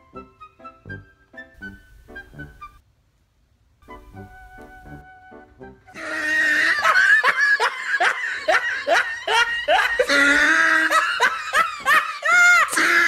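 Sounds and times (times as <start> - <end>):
faint music: 0.0 - 6.2
loud laughter: 6.0 - 13.0.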